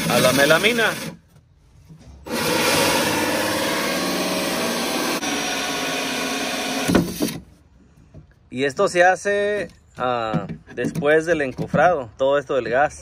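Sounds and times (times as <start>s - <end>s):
cordless drill boring through board: 0.0s - 1.2s, 2.3s - 7.4s.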